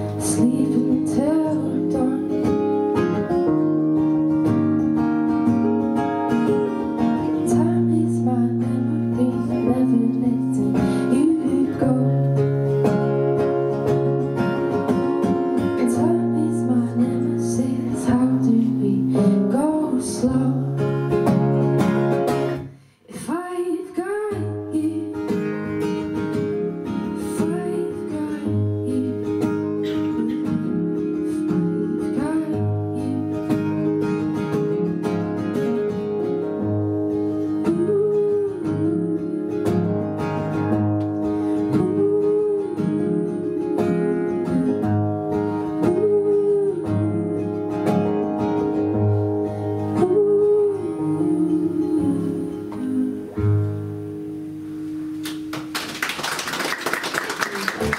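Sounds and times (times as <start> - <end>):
woman singing: 0.0 - 3.5, 6.6 - 13.0, 14.7 - 21.2, 23.1 - 25.7, 26.9 - 33.9, 37.4 - 40.7, 41.5 - 48.4, 49.8 - 53.8
acoustic guitar strummed and picked: 0.0 - 55.8.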